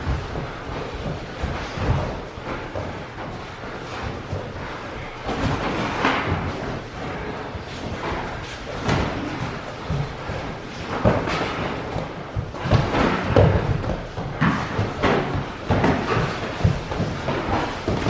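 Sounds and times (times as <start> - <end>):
padded gloves thumping: 8.0 - 18.0.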